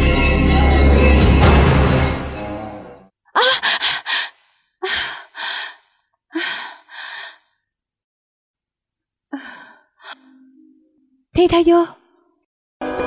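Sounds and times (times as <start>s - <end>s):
woman gasping: 3.4s - 7.5s
woman breathing heavily: 3.4s - 7.6s, 9.3s - 10.2s.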